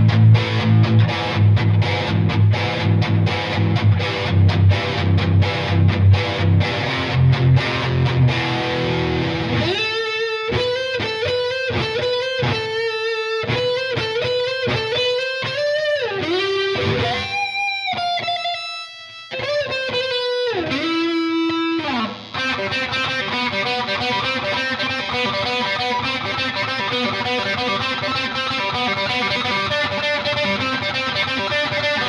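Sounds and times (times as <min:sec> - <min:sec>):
electric guitar solo: 0:00.0 - 0:32.0.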